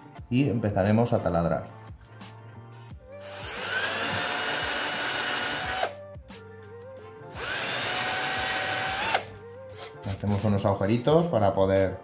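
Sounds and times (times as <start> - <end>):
electric drill boring into wood: 3.2 - 6.0, 7.4 - 9.3.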